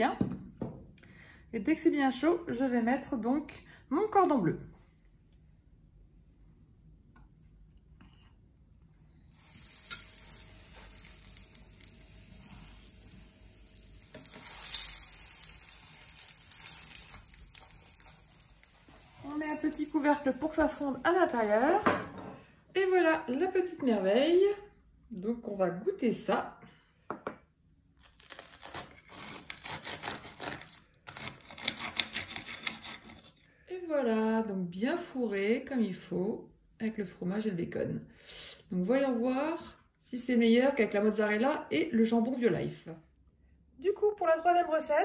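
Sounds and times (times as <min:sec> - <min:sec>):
food sizzling in hot oil: 0:09.2 - 0:21.9
knife sawing through crisp crust: 0:28.2 - 0:33.4.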